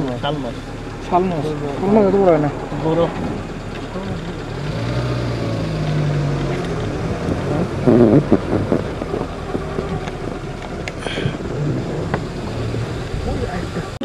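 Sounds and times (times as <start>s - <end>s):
road rumble: 0.0s - 14.0s
vehicle engine running: 0.0s - 14.0s
rough burst of noise: 2.5s - 14.0s
wind noise on microphone: 5.4s - 14.0s.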